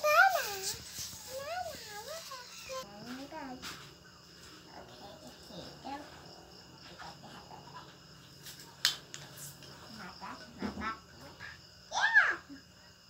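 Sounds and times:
child vocal sounds: 0.0 - 3.0
crickets chirping: 0.0 - 13.0.

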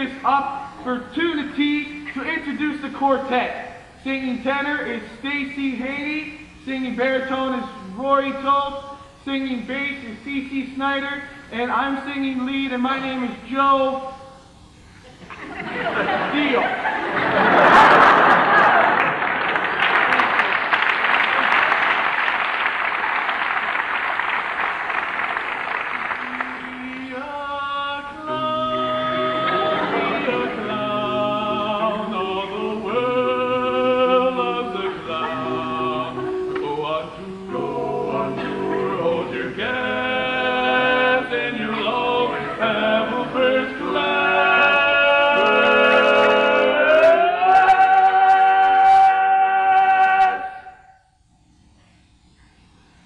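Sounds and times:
audience applause: 17.7 - 27.1
male vocal quartet singing: 26.2 - 50.7.

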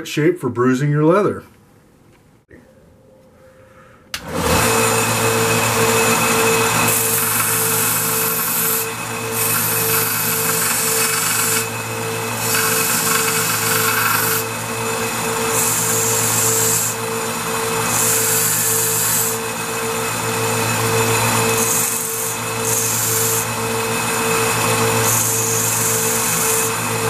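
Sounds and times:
grinder motor hum: 4.2 - 27.0
metal grinding on belt: 5.4 - 27.0.

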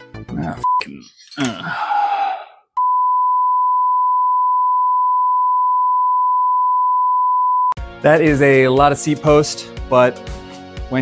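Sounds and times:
steady test tone beep: 2.8 - 7.8.

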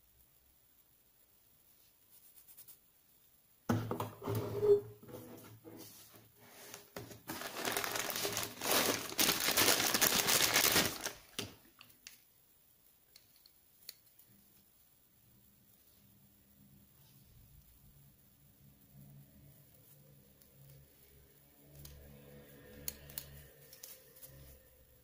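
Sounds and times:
plastic bags crinkling: 7.0 - 12.2.

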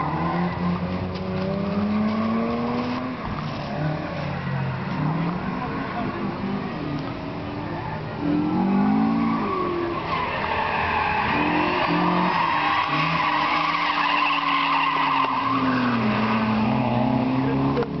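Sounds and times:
car engine revving: 0.0 - 18.0
tyre squeal: 7.7 - 17.7.

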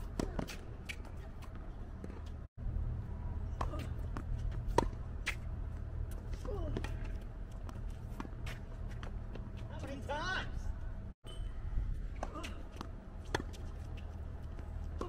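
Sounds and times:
steady low rumble: 0.6 - 9.8
tennis ball struck and bouncing: 3.5 - 5.5, 12.2 - 13.6.

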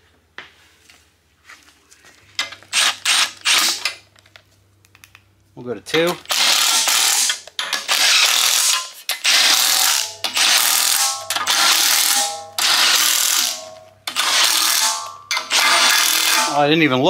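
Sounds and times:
cordless ratchet running: 6.2 - 16.6.

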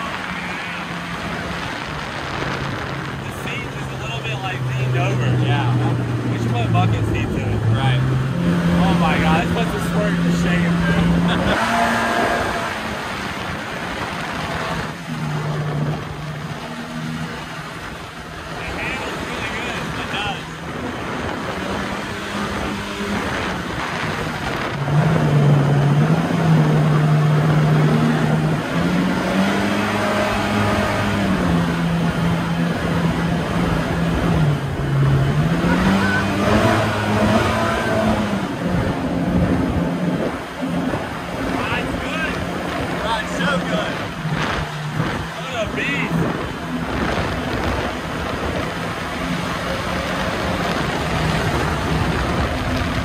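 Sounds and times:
boat engine running: 0.0 - 53.0
water and wind rushing: 0.0 - 53.0.

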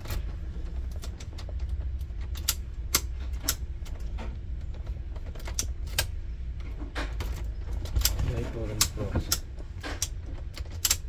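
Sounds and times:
steady low rumble: 0.0 - 11.0
metallic clicks of ignition lock: 2.3 - 3.6, 7.8 - 11.0.

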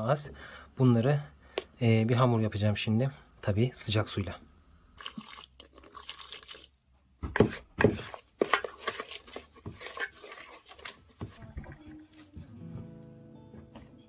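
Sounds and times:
water splashing into bowl: 5.0 - 6.8.

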